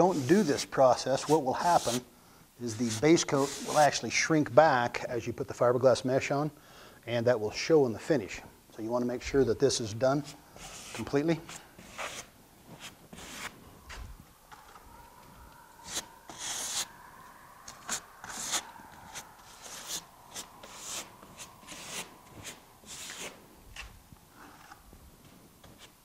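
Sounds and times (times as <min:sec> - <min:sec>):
putty knife scraping: 0:10.6 - 0:13.5, 0:15.8 - 0:16.9, 0:17.8 - 0:23.9.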